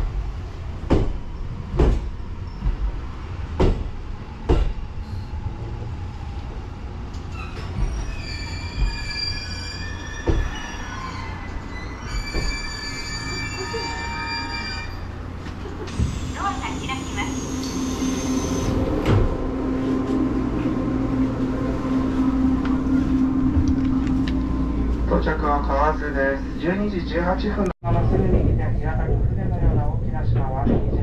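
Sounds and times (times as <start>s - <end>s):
electric train rumbling: 0.0s - 31.0s
knocks: 0.9s - 2.8s, 3.6s - 3.9s.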